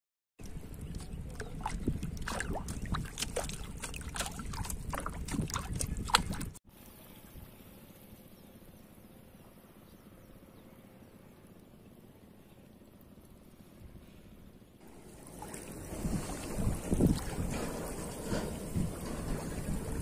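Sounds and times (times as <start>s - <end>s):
bottle gurgling underwater: 1.4s - 6.6s.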